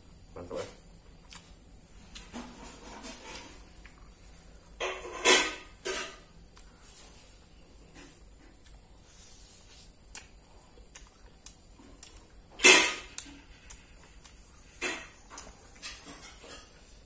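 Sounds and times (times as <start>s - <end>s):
crunching and chewing food: 0.5s - 17.0s.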